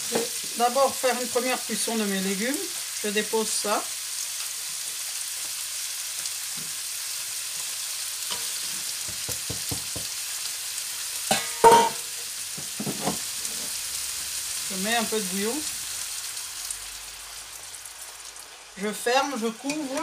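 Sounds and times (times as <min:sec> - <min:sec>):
vegetables sizzling in a pan: 0:00.0 - 0:20.0
spatula knocking against pan: 0:09.0 - 0:10.2.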